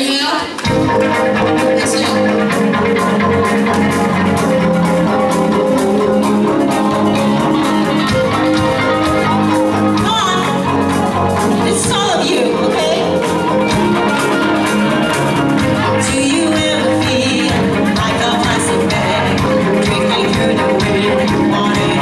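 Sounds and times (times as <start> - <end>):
drum kit: 0.0 - 22.0
keyboard: 0.0 - 22.0
electric guitar: 0.1 - 22.0
bass guitar: 0.6 - 22.0
person singing: 15.8 - 22.0.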